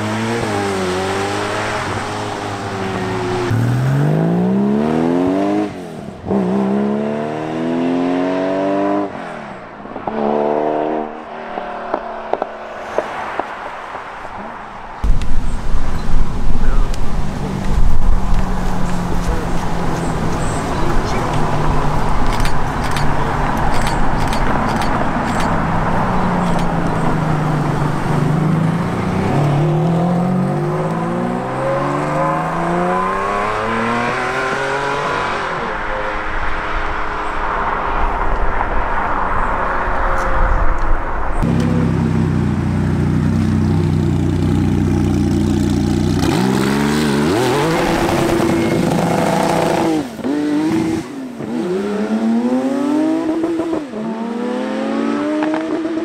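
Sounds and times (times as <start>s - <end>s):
sports car engine accelerating: 0.0s - 9.1s, 25.9s - 37.9s, 41.4s - 56.0s
sports car engine revving: 41.4s - 56.0s.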